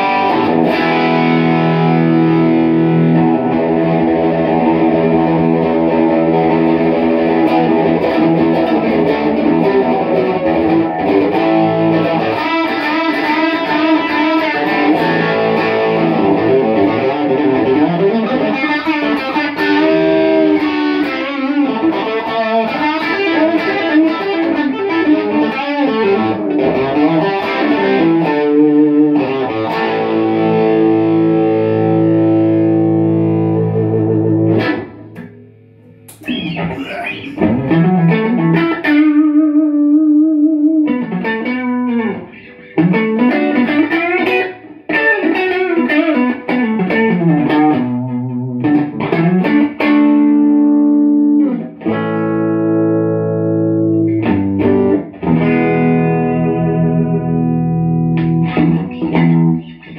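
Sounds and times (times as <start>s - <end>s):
amplified electric guitar: 0.0s - 59.9s.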